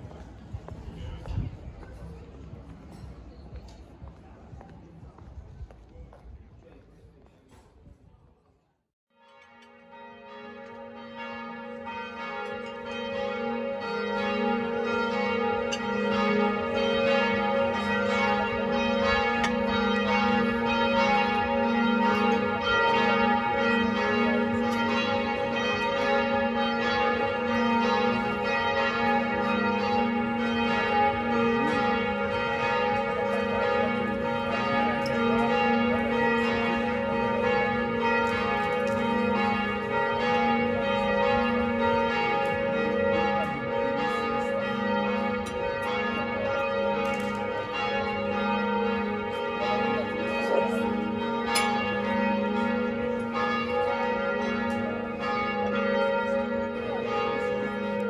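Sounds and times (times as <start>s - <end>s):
church bells pealing: 9.2s - 58.0s.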